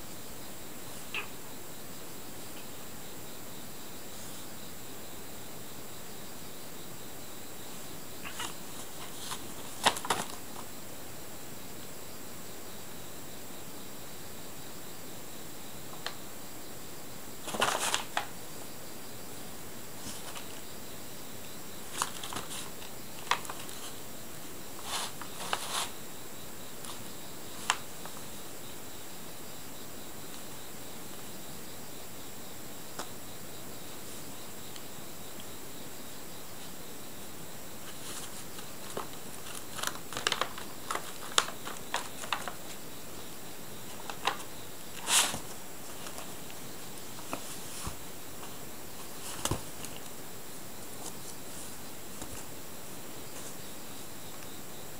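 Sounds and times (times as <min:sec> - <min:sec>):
faint hiss: 0:00.0 - 0:54.9
paper bag crinkling: 0:08.2 - 0:10.4, 0:17.4 - 0:18.3, 0:21.9 - 0:23.9, 0:37.9 - 0:42.8, 0:43.9 - 0:46.4.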